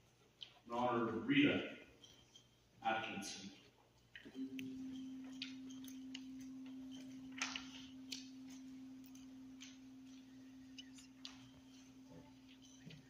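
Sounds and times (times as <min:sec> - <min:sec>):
soft footsteps: 0:03.4 - 0:13.0
low bell tone: 0:04.3 - 0:13.0.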